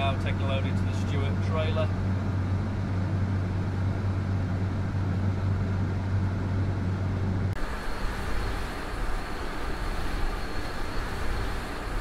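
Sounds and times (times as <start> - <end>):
combine engine drone: 0.0 - 12.0
hissy machine noise: 7.6 - 12.0.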